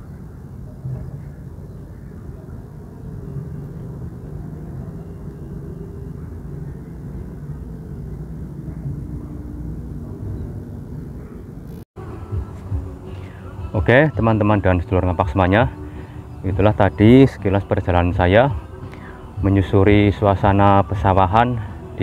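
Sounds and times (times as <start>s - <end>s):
faint hum: 0.0s - 22.0s
low rumble: 0.6s - 13.1s.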